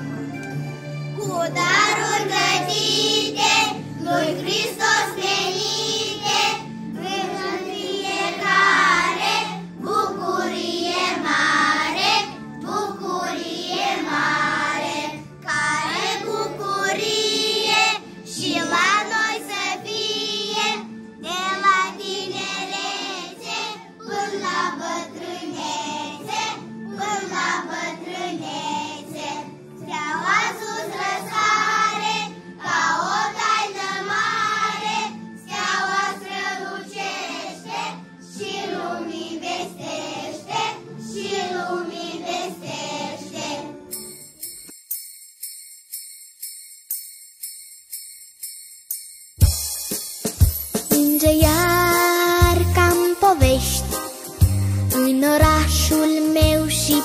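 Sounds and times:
instrumental accompaniment: 0.0 - 28.2, 30.4 - 57.0
children singing in chorus: 1.6 - 43.8.

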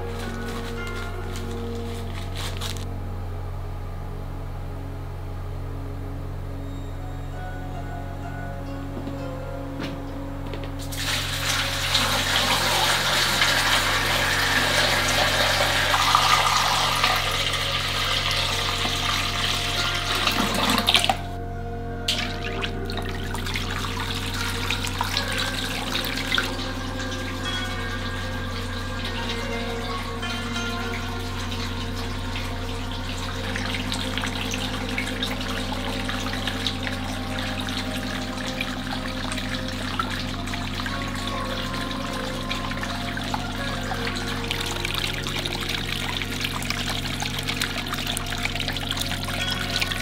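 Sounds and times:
steady low hum: 0.0 - 50.0
water pouring into a glass tank: 10.9 - 21.3, 22.1 - 50.0.

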